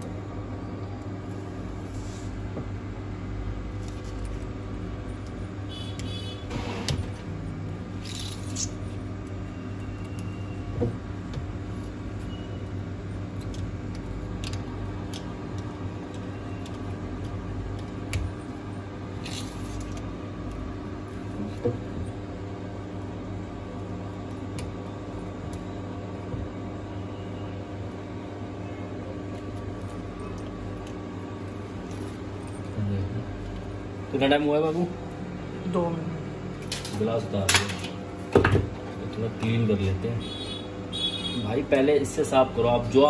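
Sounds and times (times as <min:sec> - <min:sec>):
steady hum: 0:00.0 - 0:43.0.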